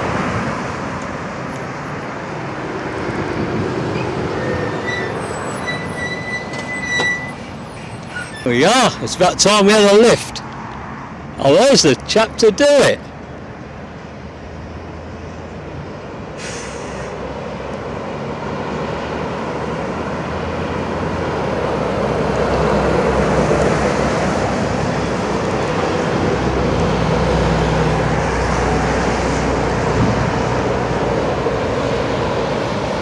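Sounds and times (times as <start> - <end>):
lorry diesel engines running: 0.0 - 33.0
tyre noise: 3.9 - 9.4.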